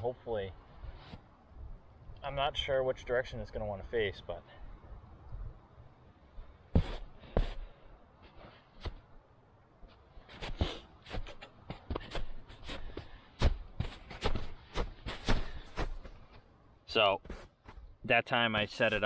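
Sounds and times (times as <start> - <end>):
footsteps crunching in snow: 6.7 - 9.0, 9.9 - 16.5, 17.2 - 17.9, 18.7 - 19.0.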